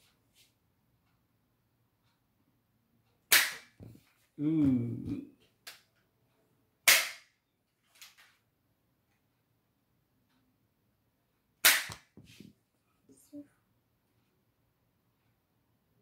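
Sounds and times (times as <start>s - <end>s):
toy gun shots: 3.3s - 3.8s, 6.8s - 7.3s, 11.6s - 12.1s.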